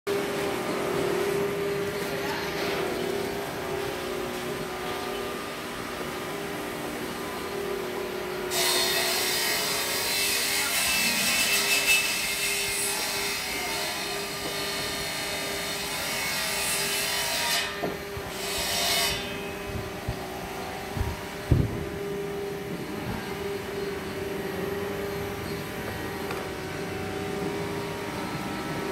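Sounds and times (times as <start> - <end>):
steady machine hum: 0.1 - 11.3, 12.2 - 28.9
power tool cutting wood: 8.2 - 22.0.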